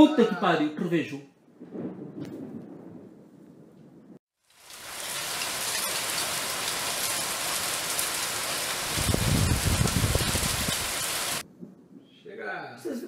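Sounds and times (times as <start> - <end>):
heavy rain on pavement: 4.4 - 11.5.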